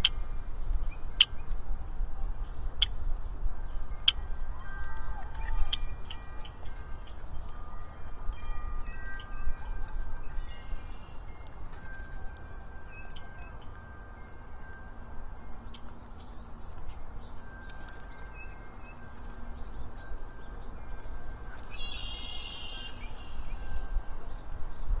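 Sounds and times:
birds chirping: 0:12.9 - 0:24.6.

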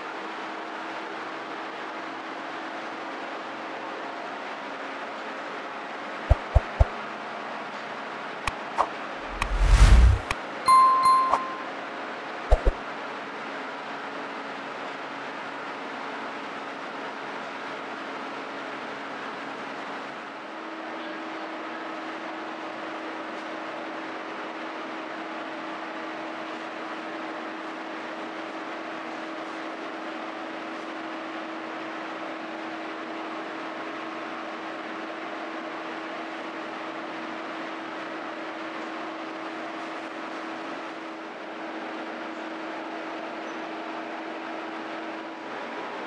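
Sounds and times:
low hum: 0:06.3 - 0:06.9, 0:09.2 - 0:11.6
machine rushing noise: 0:06.3 - 0:06.9, 0:09.2 - 0:10.3.

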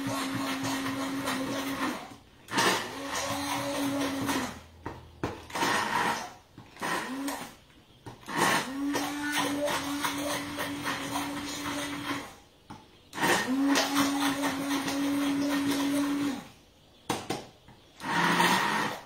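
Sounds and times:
immersion blender motor humming: 0:00.0 - 0:04.6, 0:05.5 - 0:07.6, 0:08.2 - 0:12.4, 0:13.2 - 0:16.5, 0:18.0 - 0:19.0.

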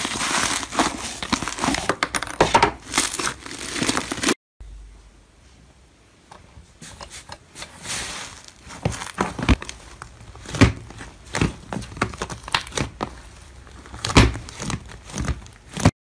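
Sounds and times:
slime crackling and popping: 0:09.1 - 0:15.9.

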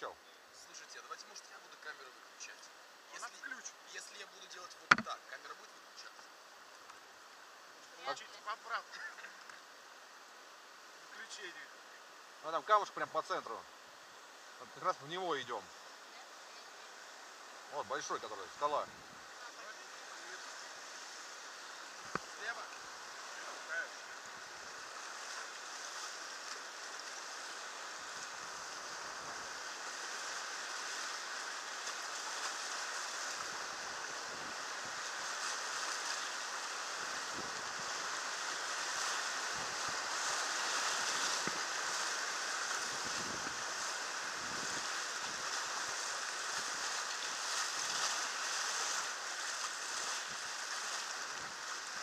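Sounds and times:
whitewater rushing: 0:16.2 - 0:52.0.

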